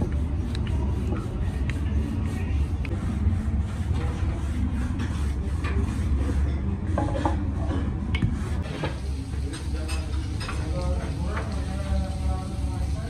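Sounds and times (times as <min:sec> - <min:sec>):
rolling pin rolling dough: 0:00.0 - 0:09.0
steady low hum: 0:00.0 - 0:09.3.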